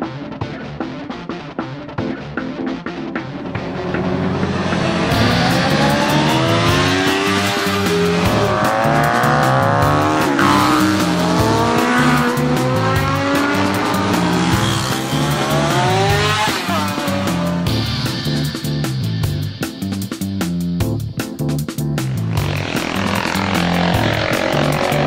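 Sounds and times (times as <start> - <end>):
background music: 0.0 - 25.0
racing motorcycles accelerating past: 3.4 - 17.7, 22.2 - 25.0.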